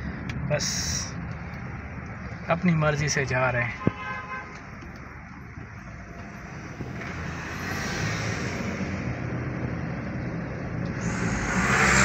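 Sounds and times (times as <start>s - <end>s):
road noise on wet road: 0.0s - 12.0s
car engine hum: 4.5s - 12.0s.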